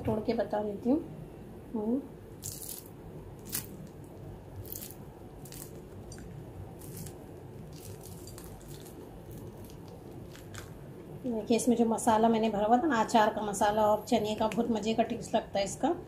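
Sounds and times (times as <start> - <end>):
faint background noise: 0.0 - 16.0
fried snack shell crackling: 2.4 - 11.1.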